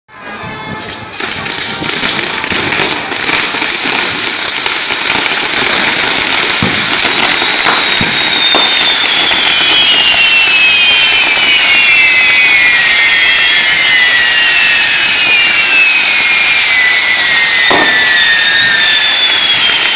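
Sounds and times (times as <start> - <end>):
hissing rush of firework sparks: 0.8 - 19.9
high descending whistles: 2.3 - 19.9
sharp firework pops: 5.1 - 9.6, 17.6 - 18.4.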